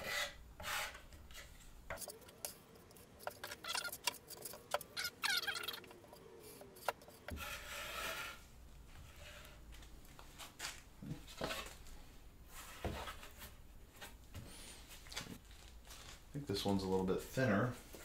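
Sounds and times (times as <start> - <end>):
trowel scraping adhesive: 0.0 - 8.4.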